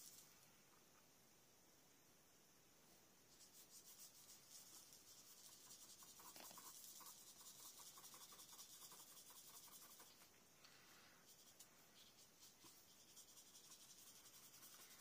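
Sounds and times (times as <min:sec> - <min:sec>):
brush pen scratching on paper: 0:03.3 - 0:10.3, 0:11.2 - 0:15.0.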